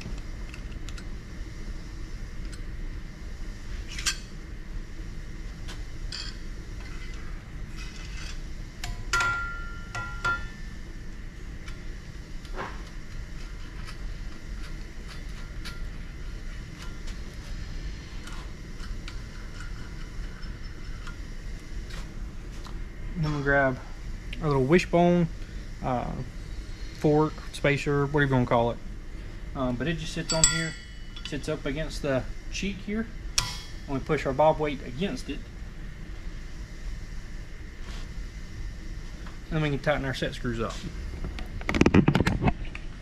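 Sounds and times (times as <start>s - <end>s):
steady low hum: 0.0s - 43.0s
ringing metal clink: 30.2s - 31.4s.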